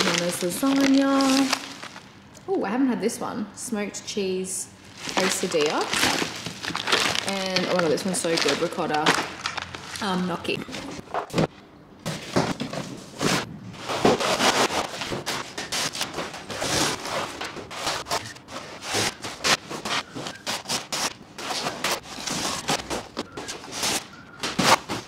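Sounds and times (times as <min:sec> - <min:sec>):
cardboard scraping and rubbing: 0:12.1 - 0:25.0.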